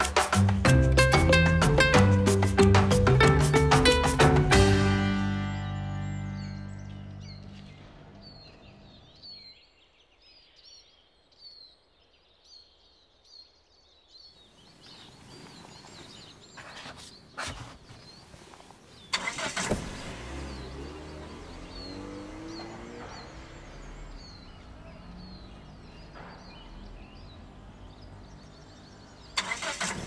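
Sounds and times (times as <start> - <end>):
background music: 0.0 - 8.1
birds chirping: 0.0 - 30.0
passing traffic noise: 0.6 - 9.5, 18.4 - 30.0.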